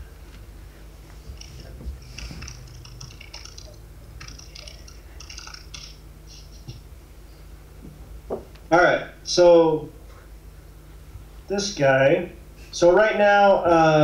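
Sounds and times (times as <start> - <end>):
laptop keyboard typing: 1.3 - 6.0.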